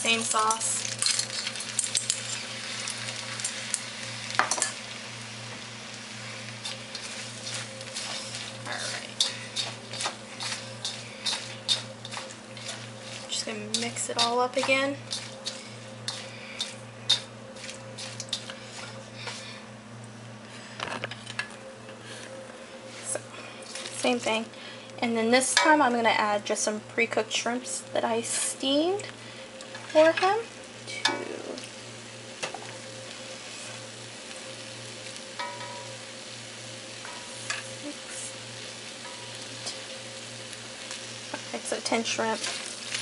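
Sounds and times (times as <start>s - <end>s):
noodles squishing in wok: 0.0s - 19.6s, 29.6s - 43.0s
steady low hum: 0.0s - 43.0s
tongs clicking against pan: 9.2s - 12.8s.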